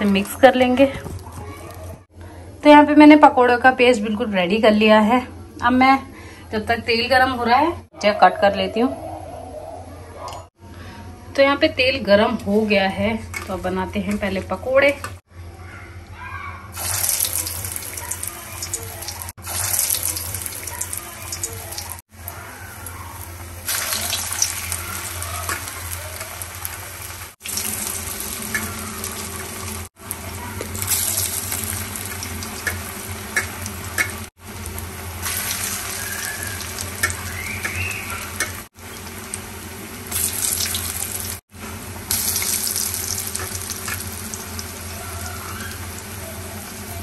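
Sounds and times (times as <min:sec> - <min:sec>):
food deep-frying in hot oil: 0:16.7 - 0:47.0.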